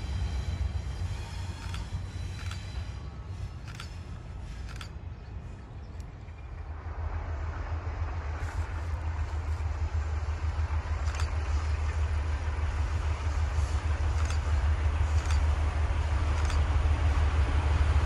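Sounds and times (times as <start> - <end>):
diesel locomotive engines rumbling: 0.0 - 18.0.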